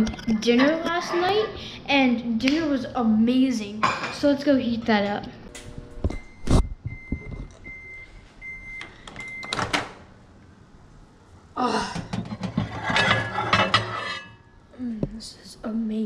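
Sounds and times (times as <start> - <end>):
microwave beeping: 5.5 - 10.0
plate clattering on turntable: 12.0 - 14.4.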